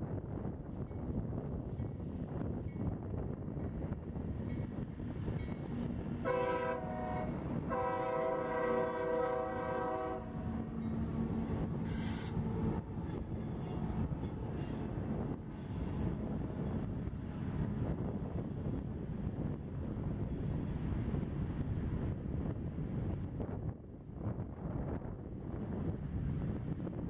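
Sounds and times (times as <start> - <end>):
freight cars rumbling on rails: 0.0 - 27.0
train air horn blasts: 6.2 - 10.7, 11.8 - 12.4
high-pitched wheel squeal: 13.0 - 14.9, 15.5 - 19.4.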